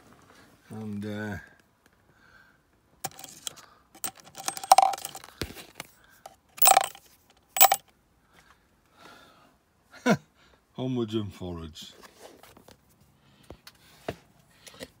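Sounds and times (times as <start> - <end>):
nails clinking into plastic pot: 3.0 - 5.3, 6.6 - 7.0, 7.6 - 7.8.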